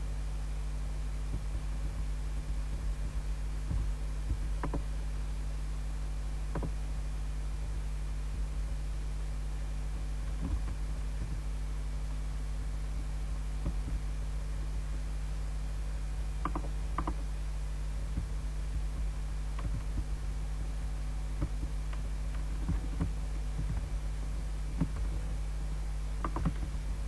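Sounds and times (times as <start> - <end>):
low electrical hum: 0.0 - 27.0
mouse and keyboard clicks: 16.4 - 17.2, 26.2 - 26.7.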